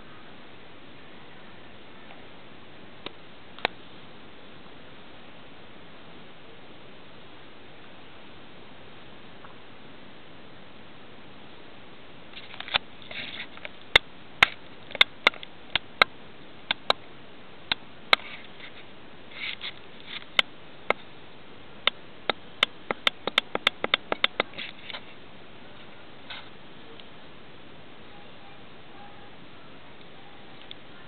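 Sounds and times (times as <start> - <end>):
sharp clicks: 13.6 - 16.1, 16.7 - 17.0, 21.8 - 24.7.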